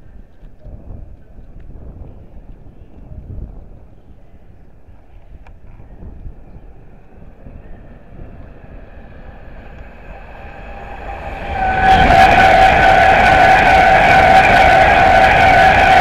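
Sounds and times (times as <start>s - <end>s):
steady high whine: 6.6s - 16.0s
train wheel and air rush: 6.8s - 16.0s.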